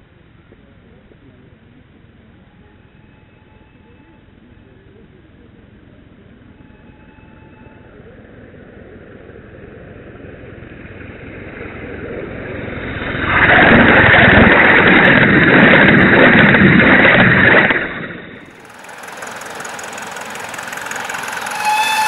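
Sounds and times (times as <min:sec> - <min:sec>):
model steam locomotive running: 0:00.2 - 0:08.6, 0:17.7 - 0:22.0.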